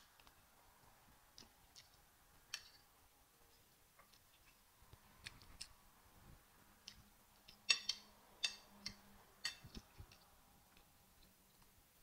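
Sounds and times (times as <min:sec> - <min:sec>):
wet chewing clicks and smacks: 0:01.3 - 0:02.8.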